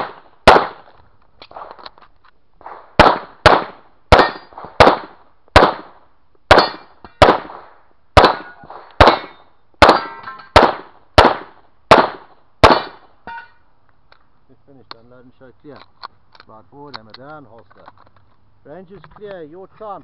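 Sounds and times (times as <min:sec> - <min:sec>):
pistol shots: 0:00.0 - 0:00.9, 0:02.6 - 0:13.1
steel targets ringing: 0:06.6 - 0:07.2, 0:08.4 - 0:10.6, 0:13.3 - 0:13.6.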